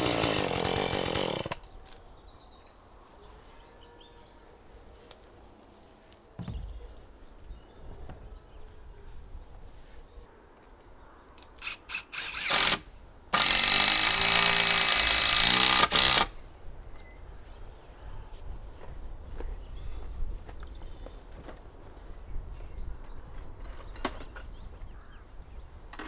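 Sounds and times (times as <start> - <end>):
power drill running: 0.0 - 1.6, 11.6 - 12.8, 13.4 - 16.3
dull thump: 6.4 - 6.8.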